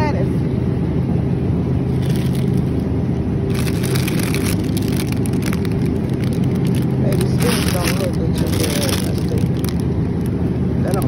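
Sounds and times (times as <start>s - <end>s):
refrigerated display case humming: 0.0s - 11.0s
crackly rustling: 1.9s - 2.9s, 3.5s - 11.0s.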